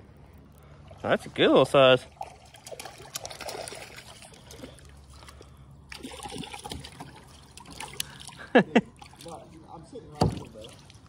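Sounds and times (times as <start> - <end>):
fish splashing in water: 2.0 - 9.5.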